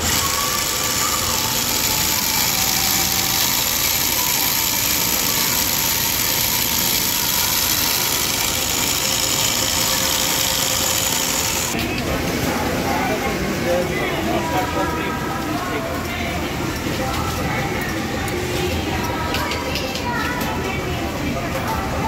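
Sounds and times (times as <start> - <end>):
sewing machine running: 0.0 - 11.8.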